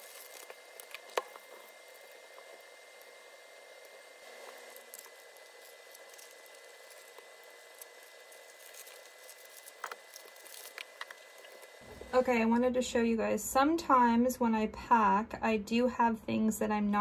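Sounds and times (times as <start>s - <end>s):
faint rustling and handling: 0.0s - 12.2s.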